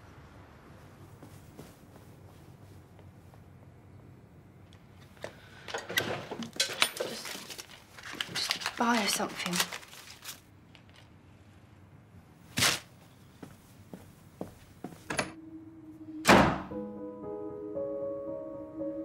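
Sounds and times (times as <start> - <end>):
music of long held notes: 15.4 - 19.0.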